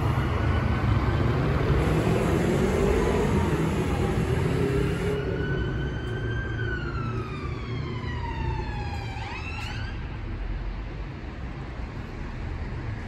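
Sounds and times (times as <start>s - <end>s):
emergency siren wailing: 0.0s - 10.2s
city traffic rumble: 0.0s - 13.0s.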